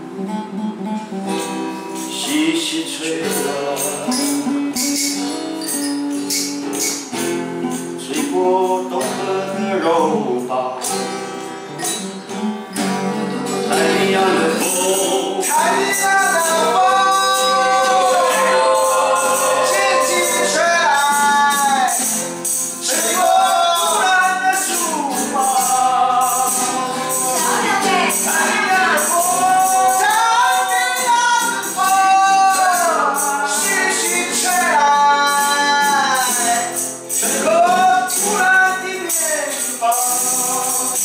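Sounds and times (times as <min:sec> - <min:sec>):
acoustic guitars strumming: 0:00.0 - 0:41.0
men singing together: 0:02.1 - 0:04.6, 0:08.0 - 0:10.9, 0:13.6 - 0:41.0
tambourine jingling: 0:03.2 - 0:41.0.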